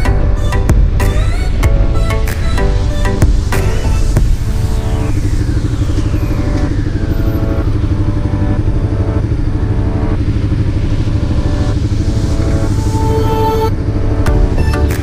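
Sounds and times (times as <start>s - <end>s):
background music: 0.0s - 15.0s
motorcycle engine rumble: 0.0s - 15.0s
high tone sliding down: 0.3s - 15.0s.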